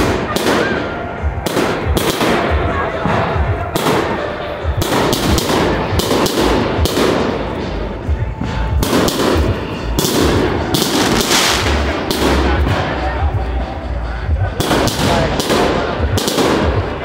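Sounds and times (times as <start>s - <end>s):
firework shells bursting: 8.8s - 12.7s.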